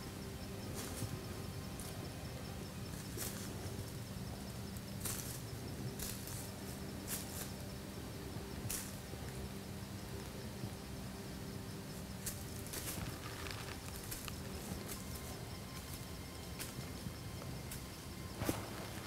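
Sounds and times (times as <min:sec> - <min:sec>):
deer footsteps in dry leaves: 0:12.2 - 0:17.0.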